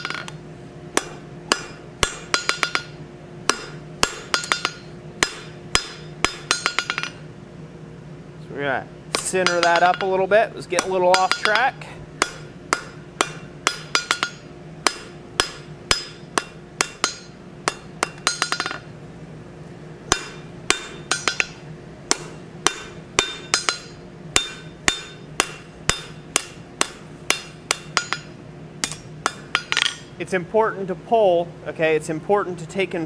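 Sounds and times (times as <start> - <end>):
steady low hum: 0.0 - 33.0
hammer ringing on anvil: 1.0 - 7.2, 9.2 - 10.2, 10.8 - 18.9, 20.1 - 30.2.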